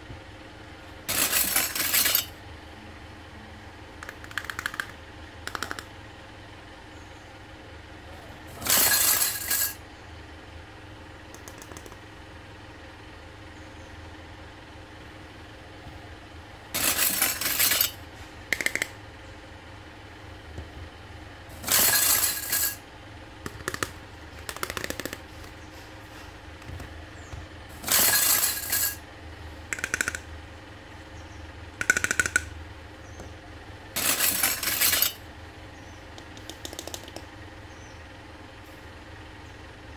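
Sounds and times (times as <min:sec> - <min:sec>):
steady low hum: 0:00.0 - 0:39.9
plastic toys clattering on a table: 0:01.1 - 0:02.3, 0:08.6 - 0:09.8, 0:16.8 - 0:18.0, 0:21.6 - 0:22.8, 0:27.8 - 0:29.0, 0:34.0 - 0:35.2.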